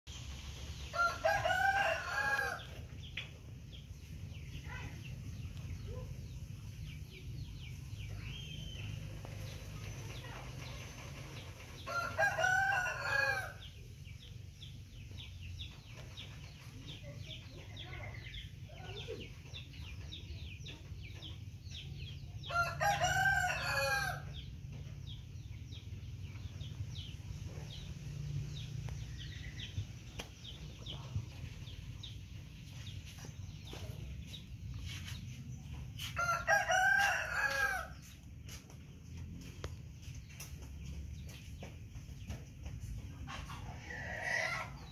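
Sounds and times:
rooster crowing: 0.9 - 2.7, 11.9 - 13.6, 22.5 - 24.3, 36.2 - 37.9.

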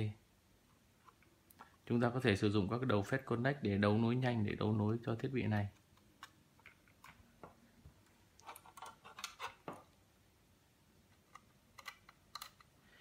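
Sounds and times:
plastic handling noise: 5.5 - 10.0.

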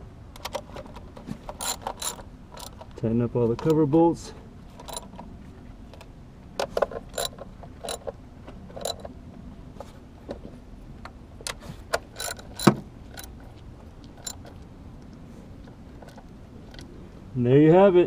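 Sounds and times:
ratchet clicking: 1.5 - 3.0, 7.1 - 8.1, 12.1 - 13.4, 14.2 - 14.6.

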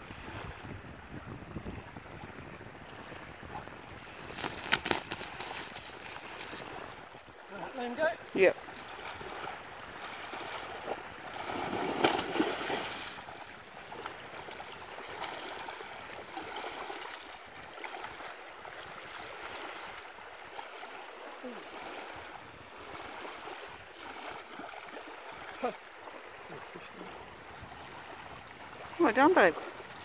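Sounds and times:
small waves at shoreline: 0.0 - 30.0
fish thrashing in shallow water: 4.0 - 7.0, 8.6 - 18.3.

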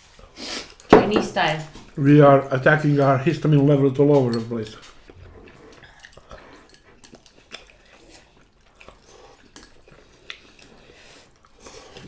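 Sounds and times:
chewing and wet mouth noises: 0.1 - 0.9, 1.7 - 12.0
chopsticks clicking against bowls: 4.0 - 5.2.

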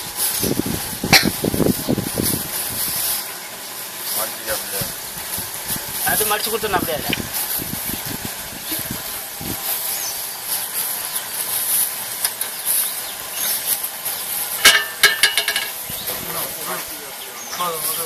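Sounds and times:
plastic sheet crackling: 0.0 - 15.0
steady high hiss: 0.0 - 18.0.

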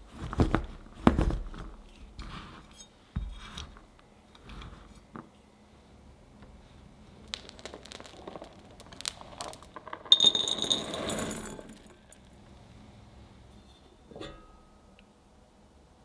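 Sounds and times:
chocolate pieces clattering into glass bowl: 7.5 - 12.2.

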